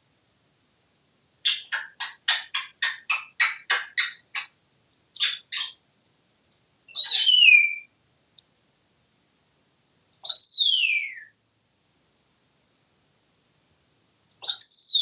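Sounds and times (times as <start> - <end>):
parrot whistling: 1.5 - 4.5, 5.2 - 5.8, 6.9 - 7.9, 10.3 - 11.3.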